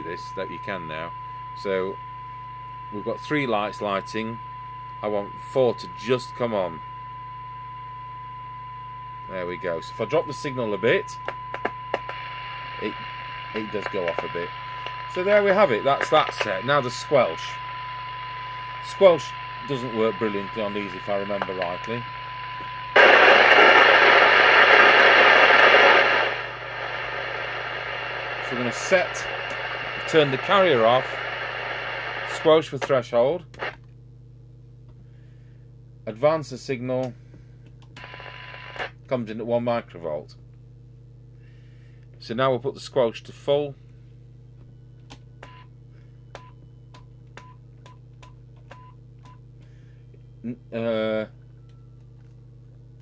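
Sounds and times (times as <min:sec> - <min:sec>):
steady test tone: 0:00.0 - 0:33.0
low mains hum: 0:00.0 - 0:53.0
radio receiver hiss: 0:09.3 - 0:33.8.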